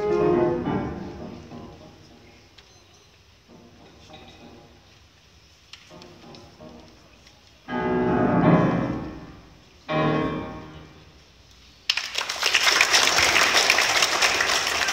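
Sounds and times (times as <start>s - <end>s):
grand piano chords: 0.0s - 2.4s, 5.9s - 11.2s
audience applause: 11.9s - 14.9s.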